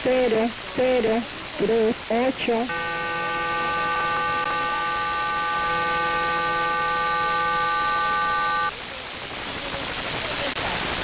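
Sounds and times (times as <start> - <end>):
shortwave static: 0.0 - 11.0
chord of held radio tones: 2.6 - 8.8.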